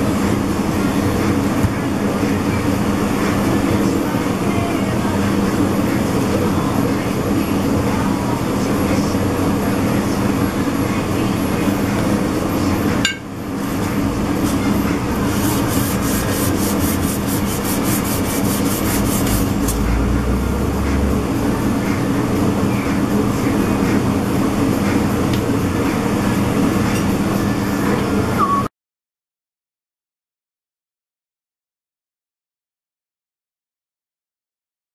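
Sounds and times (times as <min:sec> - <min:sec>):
constant hum: 0:00.0 - 0:28.7
sandpaper rubbing on metal: 0:15.2 - 0:19.8.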